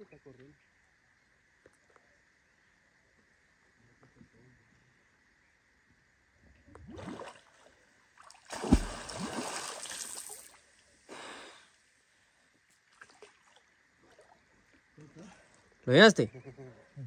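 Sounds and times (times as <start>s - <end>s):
water splashing: 6.9s - 10.6s
sharp thump: 8.6s - 9.1s
man breathing loudly: 11.1s - 11.8s.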